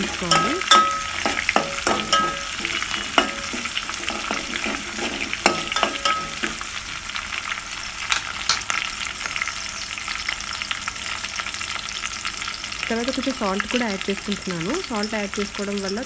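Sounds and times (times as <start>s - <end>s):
metal spoon scraping pot: 0.0s - 6.7s
onions sizzling in hot oil: 0.0s - 16.0s.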